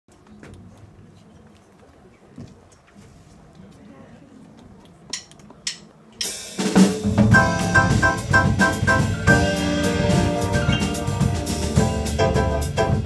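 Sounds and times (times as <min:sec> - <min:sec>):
drum kit: 0:05.1 - 0:13.0
grand piano: 0:07.0 - 0:13.0.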